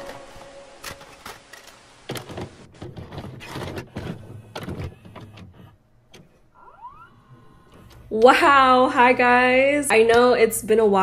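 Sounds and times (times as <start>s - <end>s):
short rising tone: 0.0s - 1.4s.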